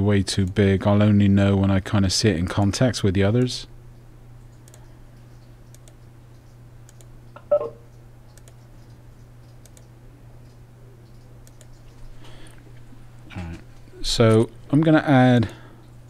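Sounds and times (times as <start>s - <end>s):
steady low hum: 0.0s - 16.0s
computer mouse clicks: 4.5s - 4.9s, 5.7s - 7.1s, 8.3s - 12.0s.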